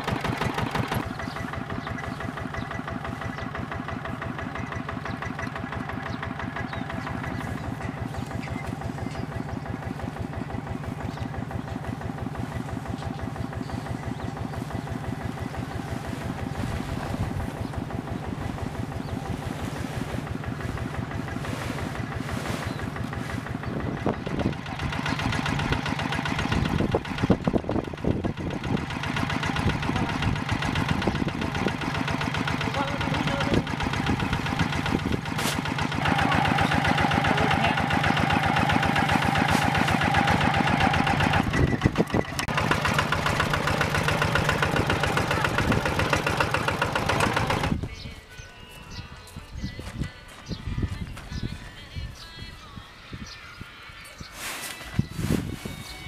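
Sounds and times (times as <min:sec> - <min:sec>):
diesel engine chugging at idle: 0:00.0 - 0:52.6
rustling: 0:19.4 - 0:23.6, 0:35.3 - 0:35.8, 0:39.0 - 0:40.0, 0:54.3 - 0:56.0.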